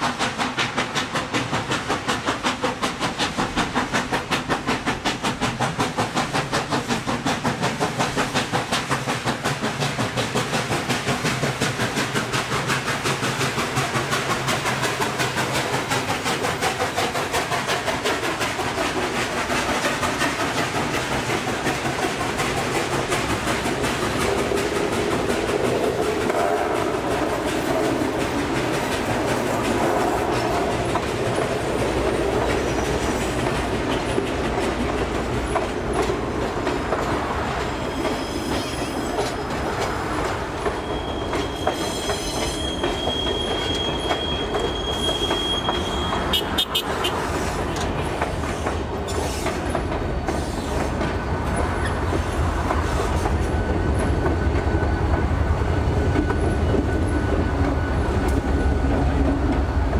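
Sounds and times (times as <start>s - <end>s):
train wheels clattering over rail joints: 0.0s - 59.9s
high-pitched wheel squeal: 37.7s - 39.5s, 40.6s - 47.0s.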